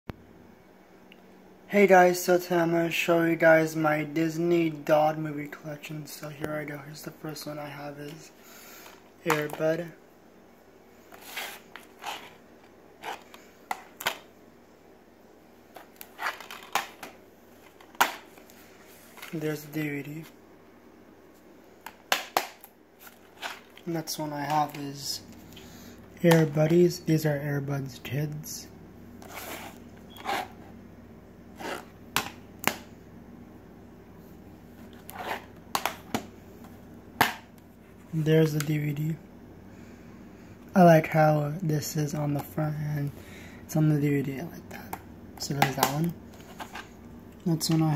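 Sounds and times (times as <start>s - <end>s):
soft scraping rustle: 11.0s - 12.4s, 18.4s - 19.5s, 29.2s - 30.7s.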